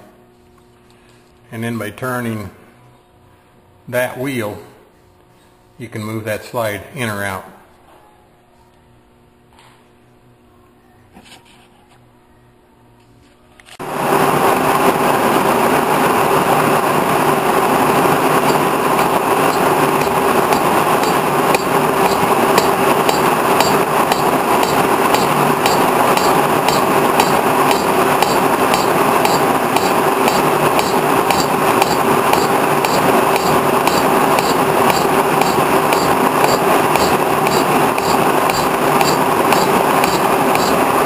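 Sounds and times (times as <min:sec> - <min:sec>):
boring mill humming: 0:13.8 - 0:41.0.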